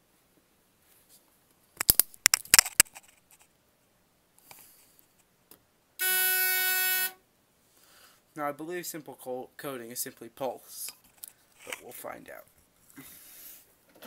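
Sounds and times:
fire alarm horn tone: 0:06.0 - 0:07.2.

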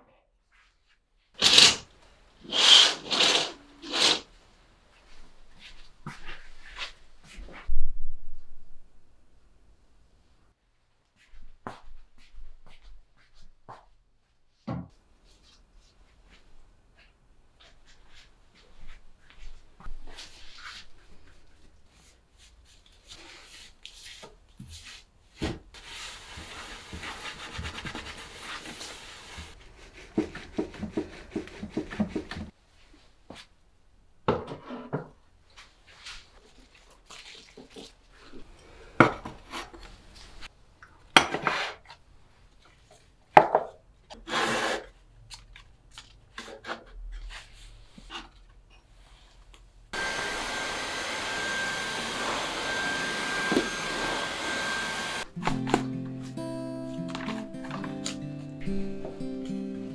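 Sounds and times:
duster rubbing on wood: 0:25.8 - 0:32.5, 0:50.0 - 0:55.3.

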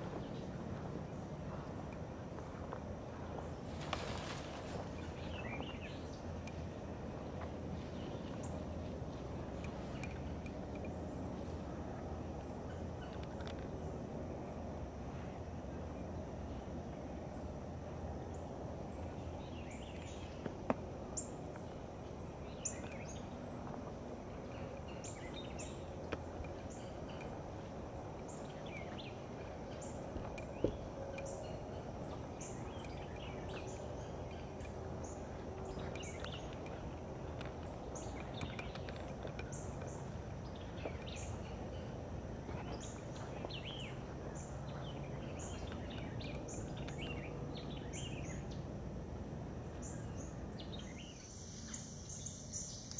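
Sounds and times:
small birds chirping: 0:00.0 - 0:14.0, 0:18.3 - 0:48.8
background hiss: 0:03.0 - 0:10.2, 0:49.3 - 0:52.9.

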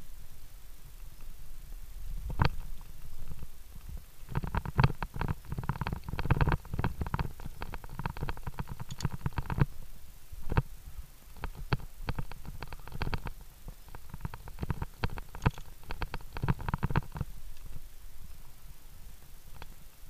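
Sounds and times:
muffled knocking and clicking on metal: 0:14.0 - 0:17.7.

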